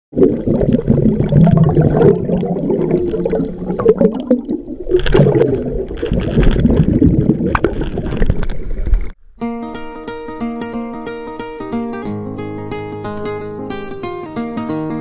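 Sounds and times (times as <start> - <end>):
air bubbling underwater: 0.2 - 9.2.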